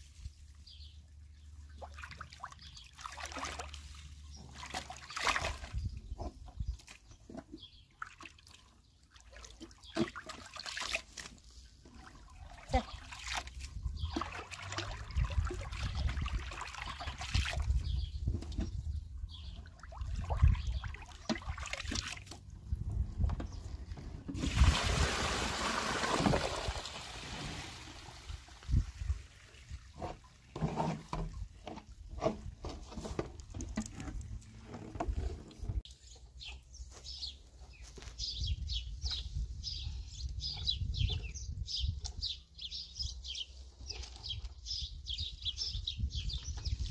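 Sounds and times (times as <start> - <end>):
handling wet wool: 0.0 - 24.6, 27.1 - 45.5
water sloshing in plastic basin: 1.4 - 35.8
birds chirping: 16.8 - 21.8, 35.6 - 46.9
wash water poured onto ground: 24.3 - 29.9.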